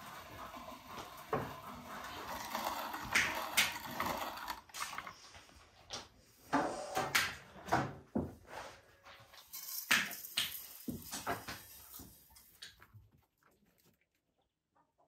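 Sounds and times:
hand grinder crunching grain: 0.0s - 5.1s.

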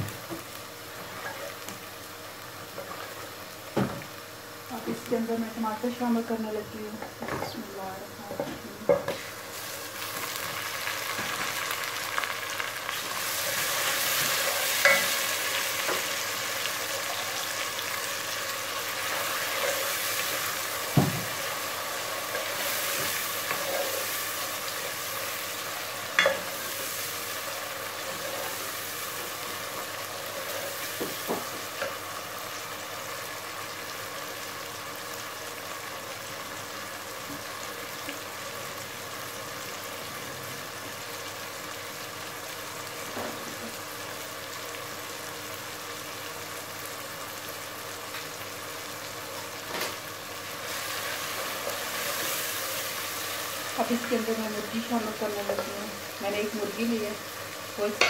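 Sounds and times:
tomatoes sizzling in oil: 0.0s - 58.0s.

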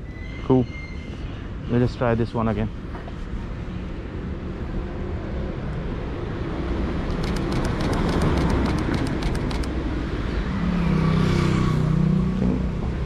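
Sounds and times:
street traffic rumble: 0.0s - 13.0s
camera shutter burst: 7.1s - 9.7s.

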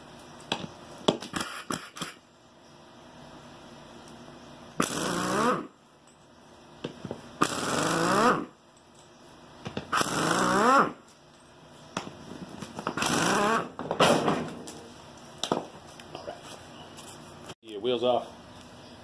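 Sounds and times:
impact wrench bursts: 1.2s - 2.2s, 4.8s - 5.7s, 7.4s - 8.5s, 9.9s - 11.0s, 12.9s - 13.8s.

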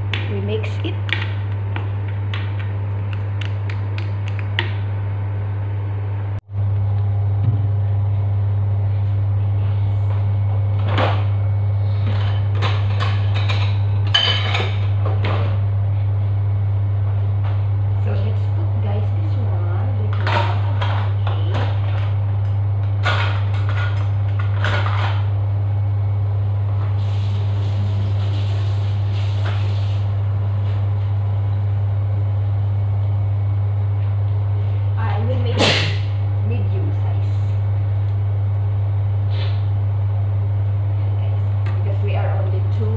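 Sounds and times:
low hum: 0.0s - 42.9s
dishes and utensils clattering: 12.1s - 14.8s.

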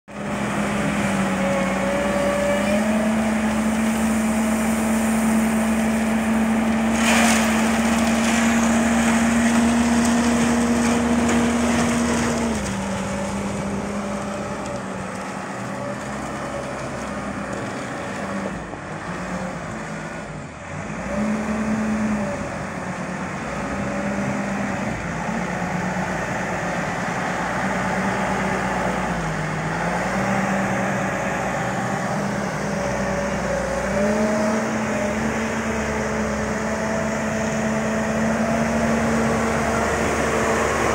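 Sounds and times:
concrete mixer diesel engine: 0.1s - 40.9s.

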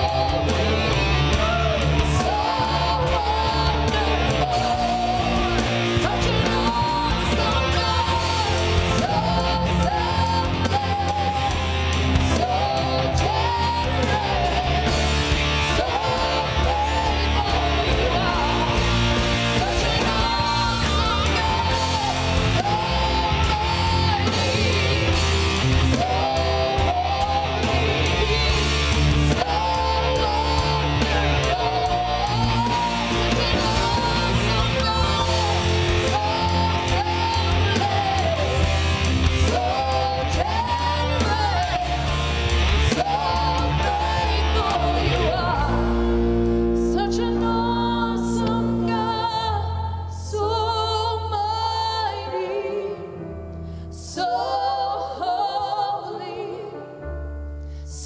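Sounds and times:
person singing: 0.0s - 46.1s
band playing: 0.0s - 49.9s
drums: 0.0s - 52.0s
bass line: 0.0s - 52.1s.

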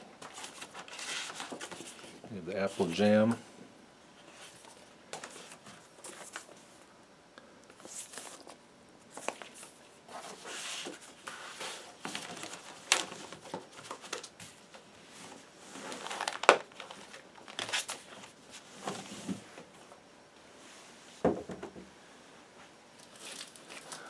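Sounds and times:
paper and cardboard rustling: 0.2s - 3.0s, 4.2s - 6.7s, 7.8s - 19.4s.

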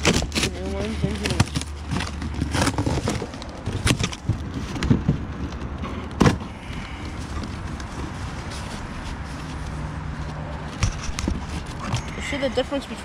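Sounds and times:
cardboard ripping: 0.0s - 5.1s
cardboard handling: 0.0s - 12.2s.

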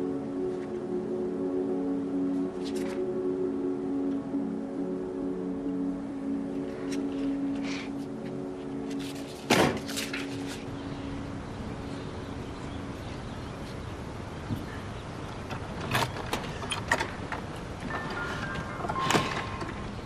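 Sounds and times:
metal latch clicking: 15.5s - 19.9s.

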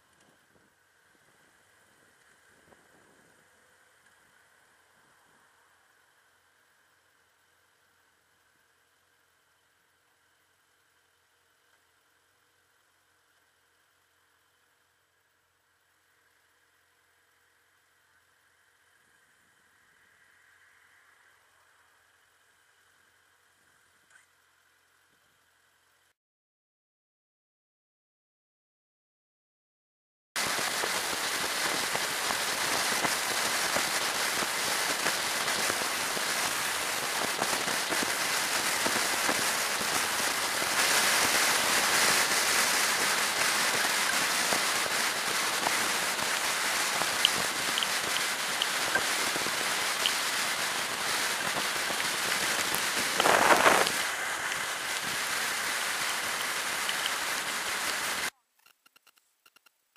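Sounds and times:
wind and rain rushing: 30.4s - 58.3s.

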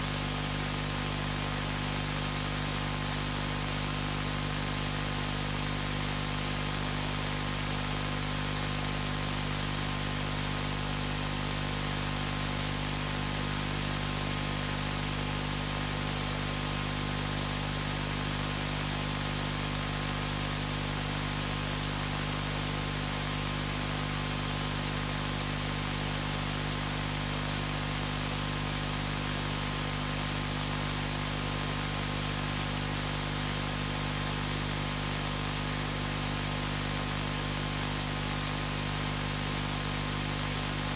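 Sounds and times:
static-like recording hiss: 9.6s - 12.6s
faint clicks: 10.3s - 11.6s.

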